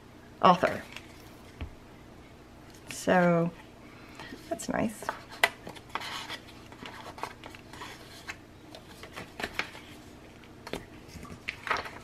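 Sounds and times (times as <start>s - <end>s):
paper rustling: 5.1s - 12.0s.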